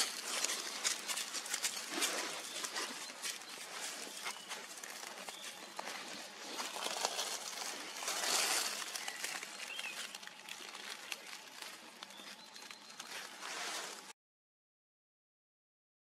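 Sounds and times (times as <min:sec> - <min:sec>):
rustling crackling hiss: 0:00.0 - 0:14.1.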